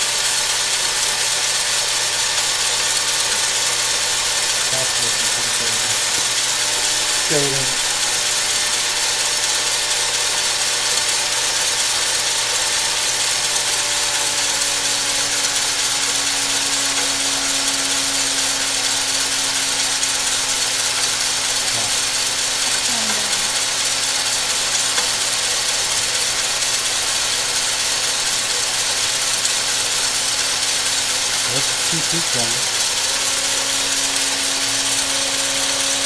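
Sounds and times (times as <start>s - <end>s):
low motor hum: 1.2s - 27.1s
heat gun blower hissing: 1.4s - 26.9s.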